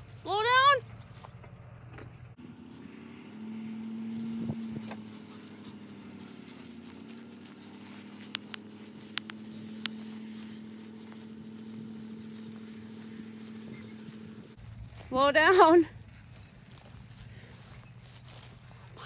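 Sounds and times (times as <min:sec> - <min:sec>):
car engine under load: 0:00.0 - 0:19.0
sharp clicks: 0:08.2 - 0:10.2.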